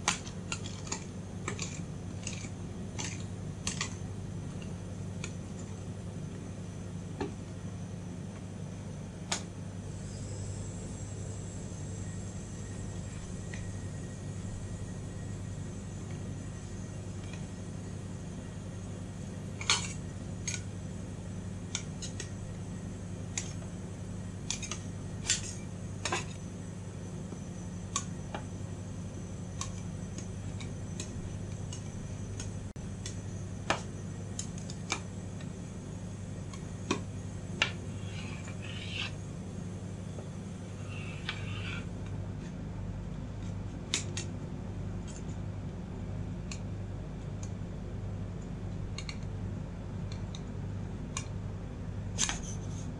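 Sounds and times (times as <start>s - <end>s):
steady low hum: 0.0s - 52.9s
spatula scraping steel plate: 37.7s - 39.2s, 40.7s - 41.9s.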